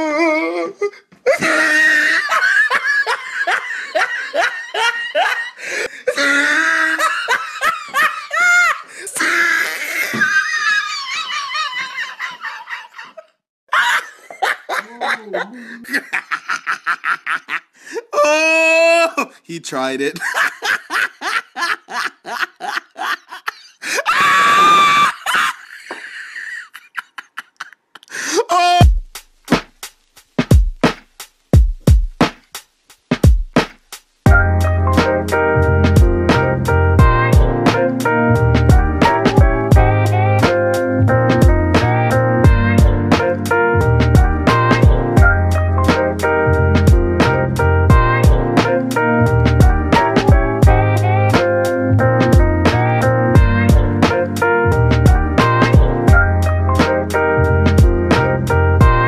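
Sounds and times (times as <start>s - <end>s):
person laughing hard: 1.2s - 19.3s, 20.2s - 28.8s
high-pitched scream: 24.0s - 25.4s.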